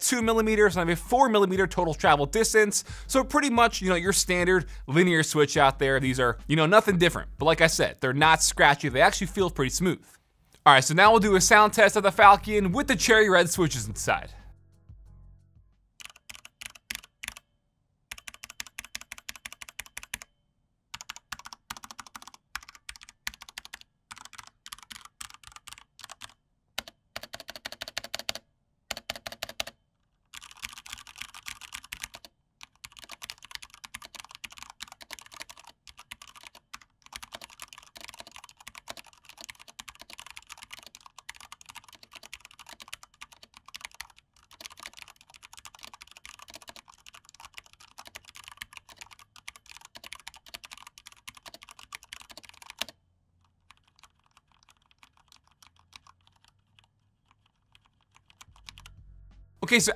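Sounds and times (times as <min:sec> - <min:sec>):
mechanical keyboard typing: 0:16.0 - 0:17.4, 0:18.1 - 0:20.3, 0:21.0 - 0:58.8.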